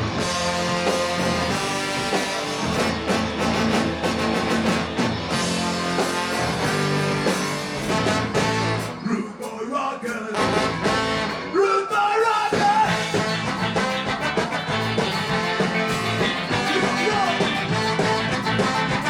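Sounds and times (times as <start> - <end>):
ska band playing live: 0.0 - 19.0
person singing: 15.6 - 18.8.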